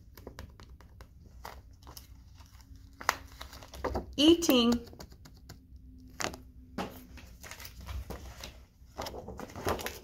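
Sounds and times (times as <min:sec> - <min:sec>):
cards tapping and clicking: 0:00.0 - 0:02.1, 0:03.0 - 0:07.1
page rustling: 0:00.0 - 0:04.2, 0:06.1 - 0:10.0.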